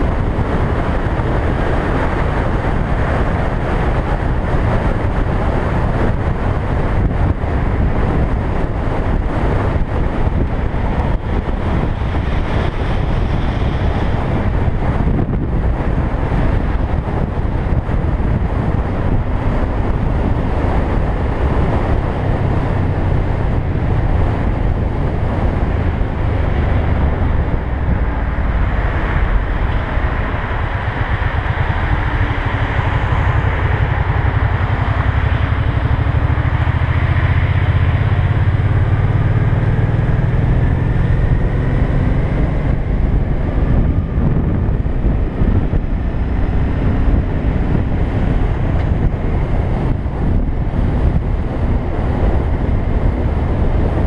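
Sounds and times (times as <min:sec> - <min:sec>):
motorcycle engine: 0:00.0 - 0:54.0
road noise: 0:00.0 - 0:54.0
wind buffeting microphone: 0:00.0 - 0:54.0.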